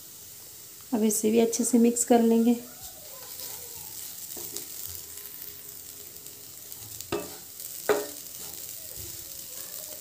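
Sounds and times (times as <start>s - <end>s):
soft frying sizzle: 0.0s - 10.0s
wooden spatula scraping a pan: 6.7s - 9.3s.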